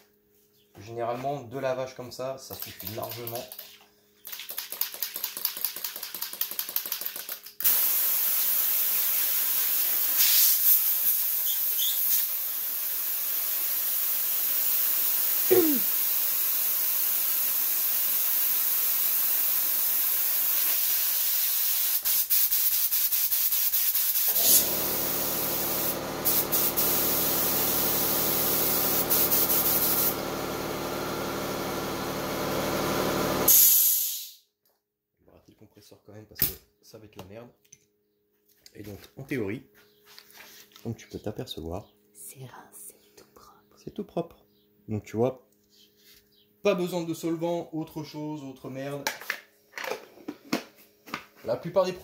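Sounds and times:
airbrush spitting and hissing: 0:07.6 - 0:17.5, 0:20.6 - 0:30.2
low compressor motor hum: 0:24.6 - 0:33.5.

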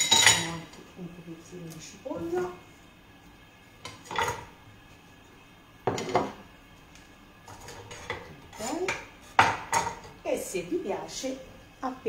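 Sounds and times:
utensils clattering against dishes: 0:00.0 - 0:00.8, 0:03.8 - 0:04.5, 0:05.9 - 0:06.4, 0:07.5 - 0:10.2.

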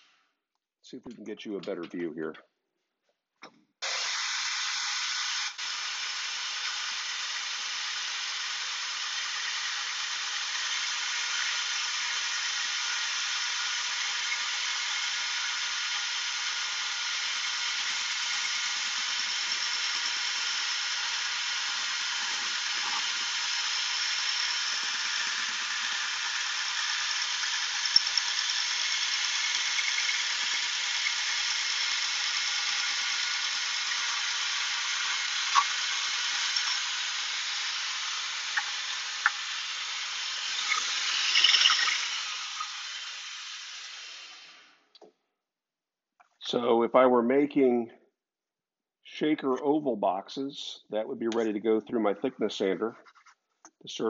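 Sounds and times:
bandsaw cutting board: 0:03.8 - 0:44.4.

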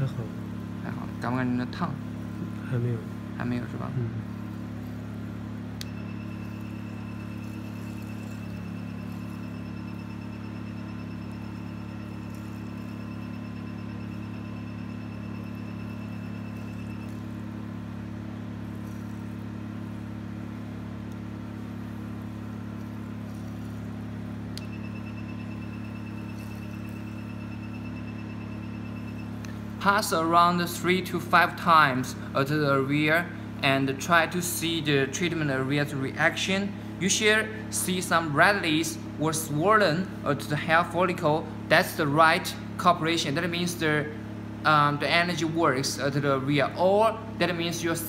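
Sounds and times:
cooling system humming: 0:00.0 - 0:48.0
rapid high-pitched beeping: 0:05.9 - 0:18.0, 0:22.4 - 0:31.6.

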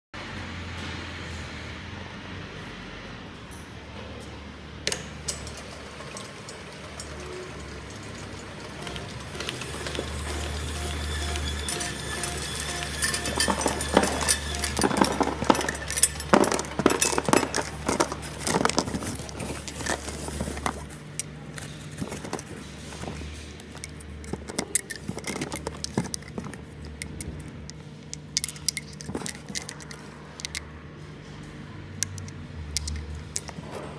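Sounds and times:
machine humming: 0:05.8 - 0:30.6
glass vials clattering: 0:06.9 - 0:22.5, 0:23.6 - 0:30.6, 0:32.0 - 0:33.6
glass vials clinking together: 0:08.2 - 0:21.3, 0:23.7 - 0:30.6.

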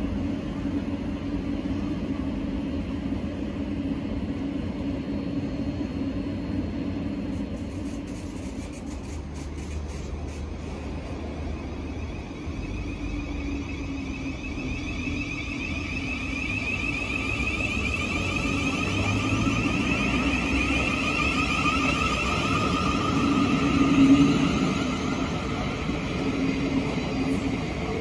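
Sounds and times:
wheels rumbling on rails: 0:00.0 - 0:28.0
electric train motor whine: 0:11.5 - 0:28.0.

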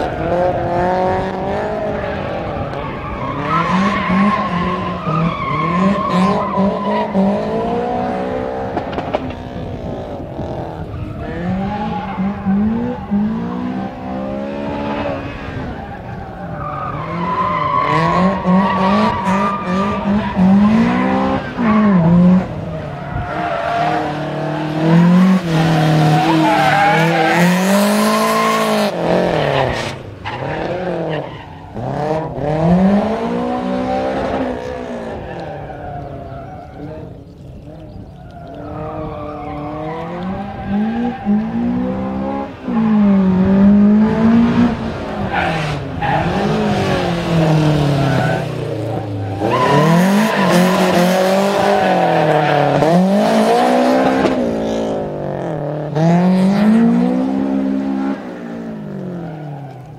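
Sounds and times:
car engine revving hard: 0:39.6 - 0:59.2
tyre squeal: 0:47.8 - 0:53.0.

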